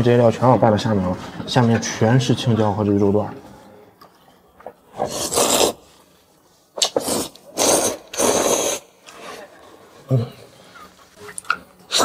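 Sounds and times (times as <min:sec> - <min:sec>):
person slurping noodles: 0:04.9 - 0:05.9, 0:06.8 - 0:08.9.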